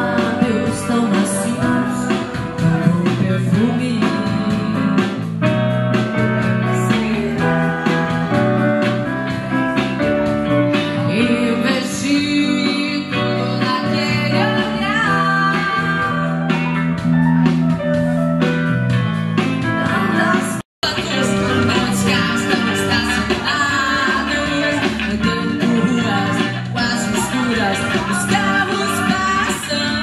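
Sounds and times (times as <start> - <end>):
woman singing: 0.0 - 5.3, 6.6 - 8.3, 10.8 - 16.6, 19.7 - 30.0
electric guitar: 0.0 - 30.0
keyboard playing: 0.0 - 30.0.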